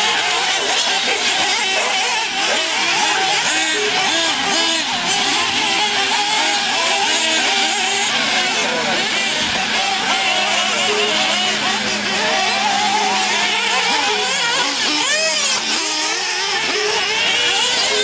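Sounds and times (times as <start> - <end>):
rc buggy engines screaming: 0.0 - 18.0.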